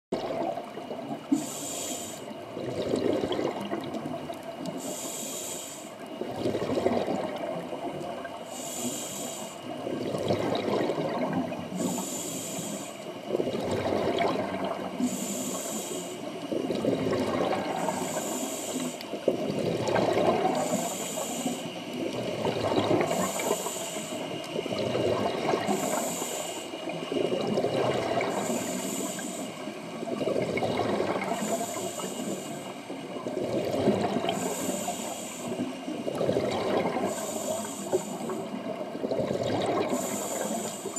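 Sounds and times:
exhaled bubbles gurgling: 0.1 - 40.9
regulator inhale hiss: 1.2 - 2.4, 4.6 - 6.1, 8.3 - 9.8, 11.7 - 13.3, 14.9 - 16.6, 17.7 - 19.2, 20.4 - 22.1, 23.0 - 24.6, 25.6 - 27.2, 28.2 - 30.2, 31.3 - 33.3, 34.2 - 36.2, 37.0 - 38.8, 39.9 - 40.9.

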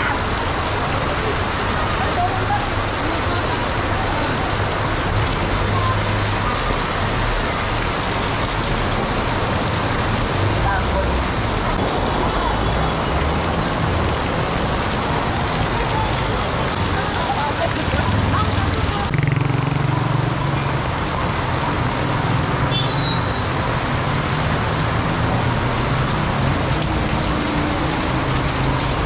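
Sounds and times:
torrential rain on pavement: 0.0 - 29.0.

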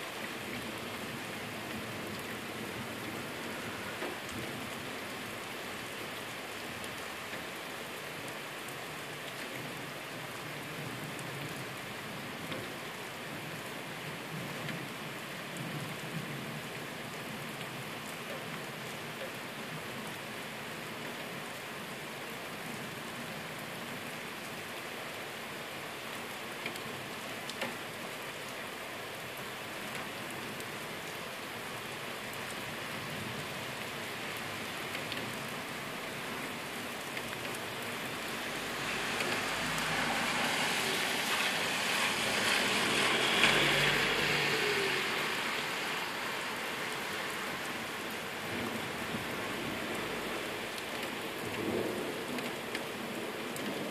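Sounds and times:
heavy rain hissing: 32.7 - 52.3.

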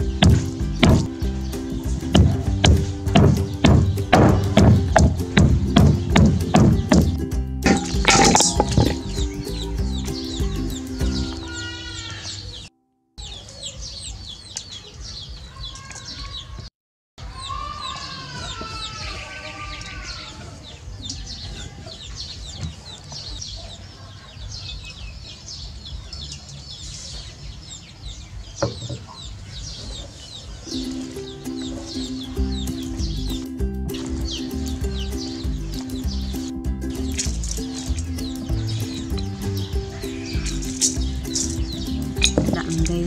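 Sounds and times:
chickens clucking: 0.0 - 12.6, 19.8 - 43.0
small birds chirping: 0.0 - 43.0
sharp knock: 0.2 - 1.1, 2.2 - 9.1.

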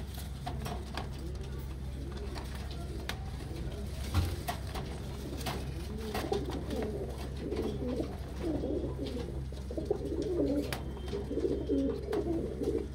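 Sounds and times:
pigeons cooing: 0.0 - 12.9.

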